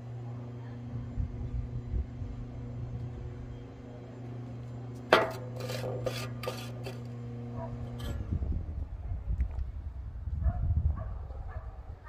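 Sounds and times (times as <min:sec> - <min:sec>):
low hum: 0:00.0 - 0:12.0
scraping and rubbing: 0:05.1 - 0:08.2.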